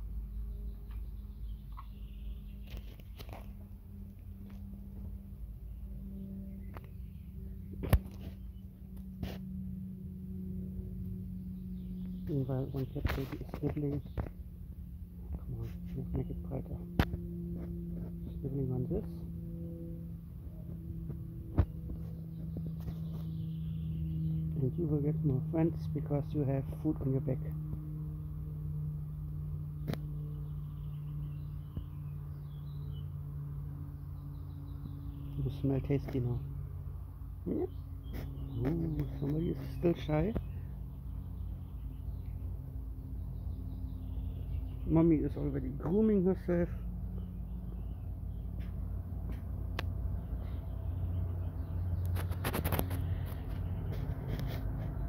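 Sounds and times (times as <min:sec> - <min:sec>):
low hum: 0:00.0 - 0:55.0
faint bird chirps: 0:00.1 - 0:03.6.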